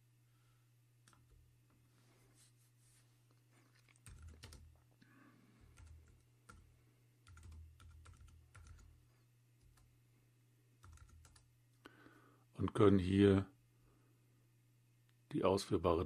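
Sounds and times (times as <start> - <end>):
low steady hum: 0.0 - 16.0
typing on computer keyboard: 3.9 - 4.8, 5.6 - 8.9, 10.8 - 11.5.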